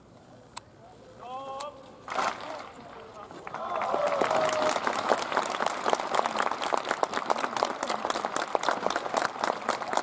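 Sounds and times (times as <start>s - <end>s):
group clapping: 2.1s - 10.0s.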